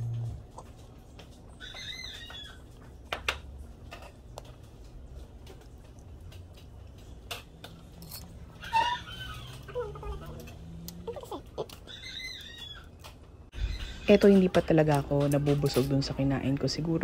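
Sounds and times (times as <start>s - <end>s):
soft chewing: 0.0s - 13.5s.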